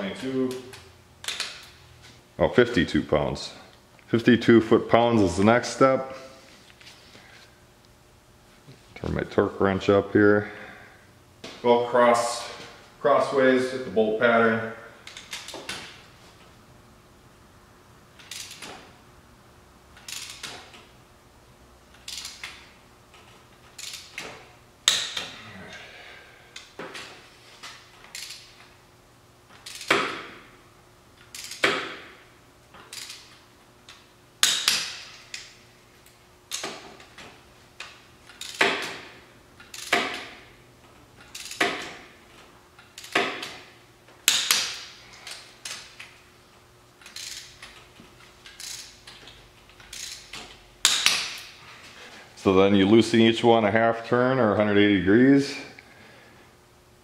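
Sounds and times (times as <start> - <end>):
torque wrench clicking: 18.2 - 18.8, 20.0 - 20.8, 21.9 - 22.6, 23.7 - 25.3, 28.0 - 28.6, 29.5 - 30.2, 31.2 - 32.0, 32.8 - 35.5, 37.8 - 39.0, 39.6 - 40.3, 41.2 - 42.0, 42.8 - 43.5, 44.3 - 46.1, 47.0 - 47.8, 48.4 - 51.5.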